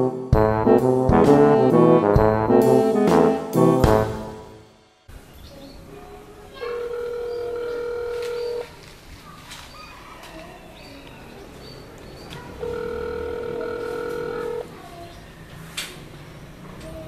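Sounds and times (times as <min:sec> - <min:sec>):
telephone ringback beep: 0:06.8 - 0:08.7, 0:12.6 - 0:14.6.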